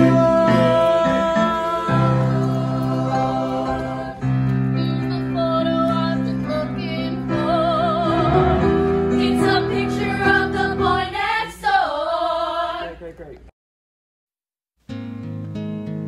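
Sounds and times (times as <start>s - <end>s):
women singing together: 0.0s - 13.0s.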